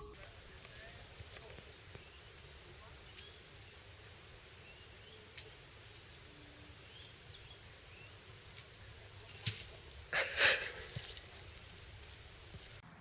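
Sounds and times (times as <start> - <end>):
rustling crash onto mulch: 0.2 - 12.8
small bird chirps: 0.8 - 8.5.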